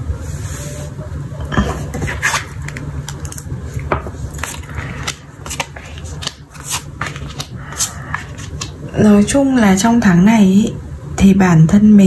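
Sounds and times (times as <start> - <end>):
cards slapping and scraping: 1.6 - 9.0.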